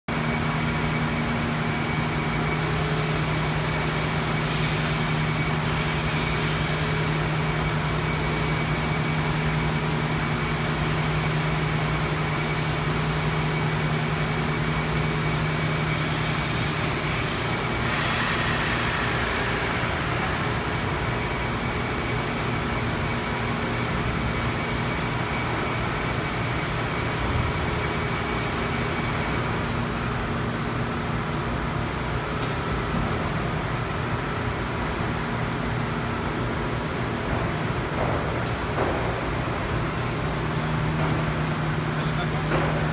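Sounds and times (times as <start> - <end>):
industrial machinery hum: 0.1 - 42.9
machinery hiss: 15.4 - 21.6.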